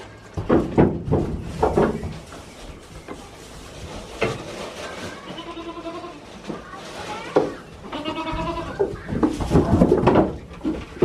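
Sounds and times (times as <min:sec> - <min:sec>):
goats bleating: 0:05.2 - 0:06.4, 0:07.8 - 0:08.9.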